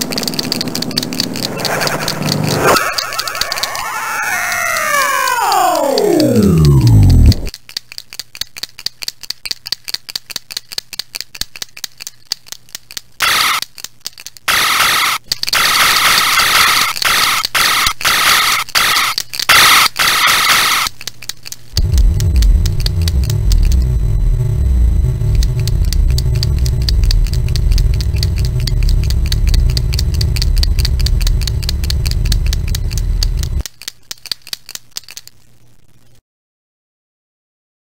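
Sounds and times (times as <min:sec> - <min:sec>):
paint marker ball rattling: 0:00.0 - 0:03.8, 0:07.5 - 0:14.5, 0:25.6 - 0:35.3
harsh noise bursts: 0:01.4 - 0:07.5, 0:13.2 - 0:13.6, 0:14.5 - 0:20.9
loud low rumbling: 0:21.8 - 0:33.6.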